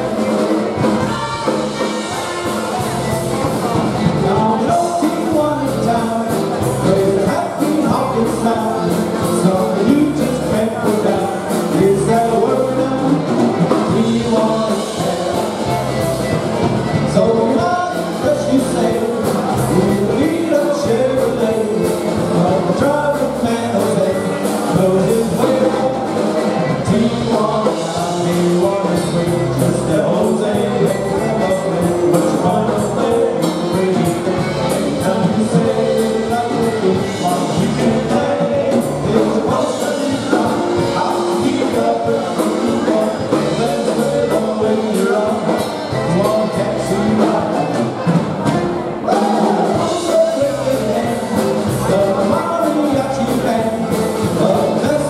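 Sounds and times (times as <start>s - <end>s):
accordion: 0.0s - 55.0s
drum kit beat: 0.0s - 55.0s
horns: 0.0s - 55.0s
polka band playing: 0.0s - 55.0s.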